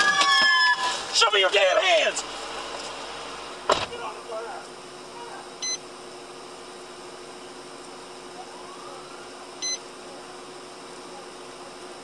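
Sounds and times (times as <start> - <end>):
car cabin hum: 0.0 - 12.0
short electronic beeps: 5.6 - 5.8, 9.6 - 9.9.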